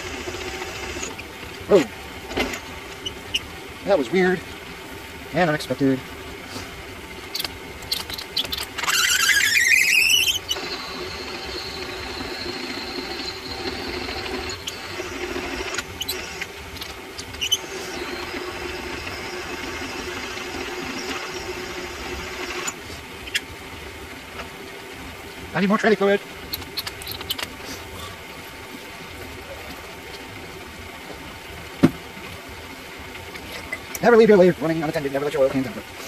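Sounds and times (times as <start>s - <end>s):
drill bit squealing: 0.0s - 1.3s, 7.4s - 23.5s
lathe humming: 0.0s - 24.0s.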